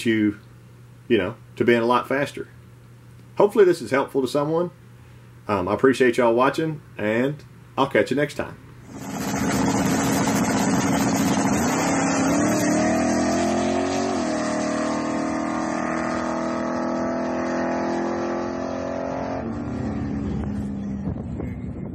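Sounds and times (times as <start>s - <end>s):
drag car engine at full throttle: 8.8s - 21.4s.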